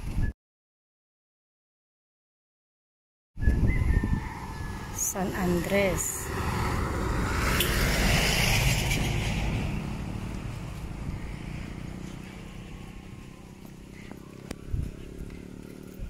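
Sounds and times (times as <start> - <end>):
minibus passing by: 3.7 - 16.0.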